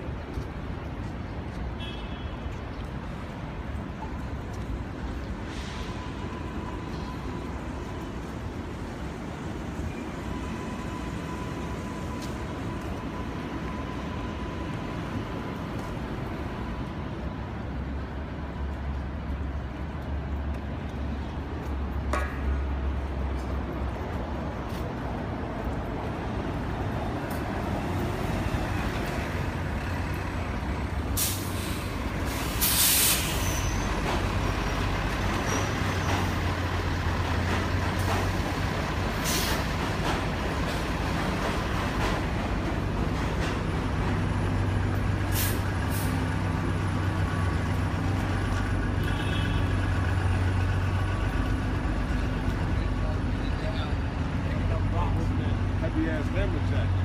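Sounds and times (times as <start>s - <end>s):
street traffic: 0.0s - 57.0s
heavy vehicle engine rumble: 2.6s - 57.0s
air brakes hissing: 5.4s - 6.4s, 31.0s - 34.2s, 39.1s - 39.7s, 45.2s - 46.3s.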